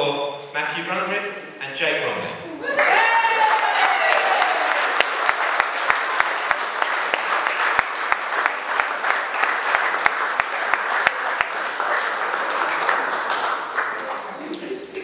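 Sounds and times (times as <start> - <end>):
audience applauding: 2.8 - 15.0
person clapping close by: 4.6 - 14.2.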